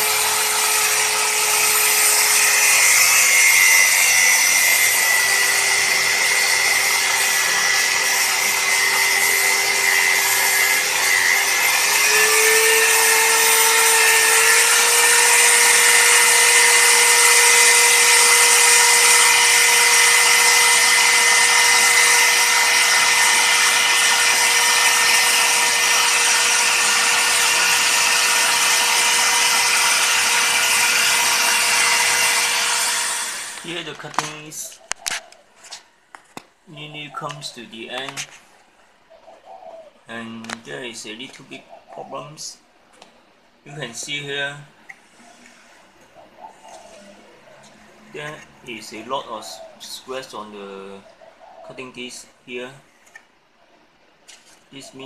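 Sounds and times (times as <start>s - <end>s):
grinder motor whine: 0.0s - 34.4s
angle grinder cutting steel: 0.0s - 34.8s.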